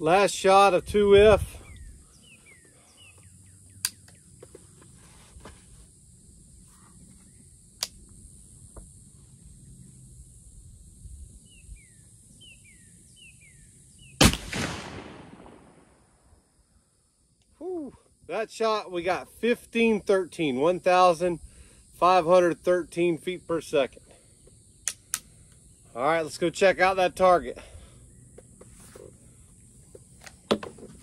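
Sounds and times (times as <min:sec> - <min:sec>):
rifle gunshot with trailing boom: 0:14.2 - 0:16.2.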